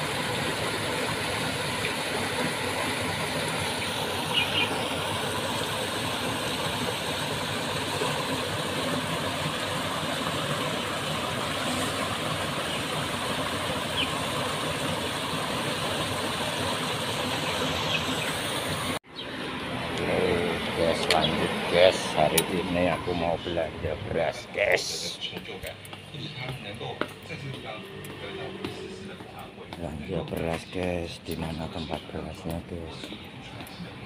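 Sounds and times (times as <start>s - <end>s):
waterfall splashing over rocks: 0.0s - 19.0s.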